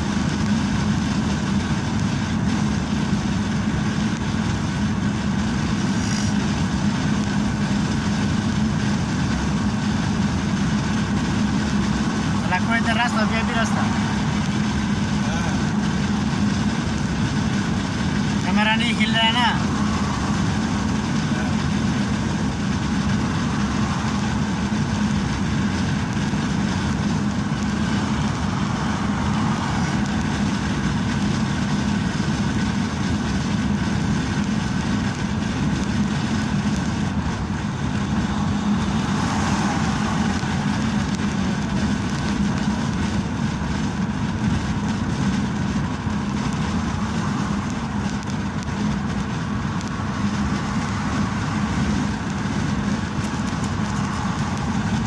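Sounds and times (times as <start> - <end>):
vehicle driving at highway speed: 0.0 - 55.0.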